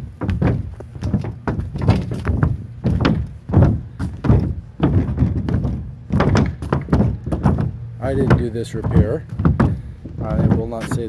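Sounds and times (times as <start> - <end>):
footsteps on sheet-metal roof: 0.0 - 11.0.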